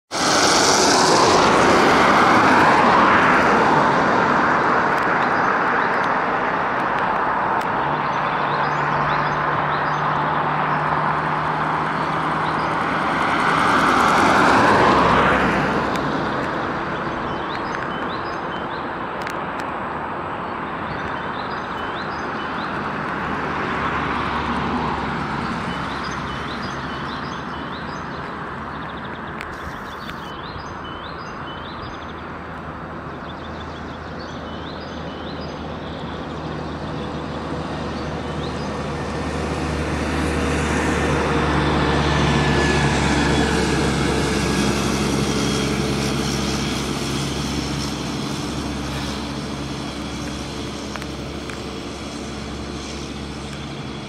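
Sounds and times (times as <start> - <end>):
cars passing on asphalt: 0.1 - 54.0
steady traffic hum: 0.1 - 54.0
small birds chirping: 16.2 - 19.0, 20.3 - 23.2, 25.4 - 38.9.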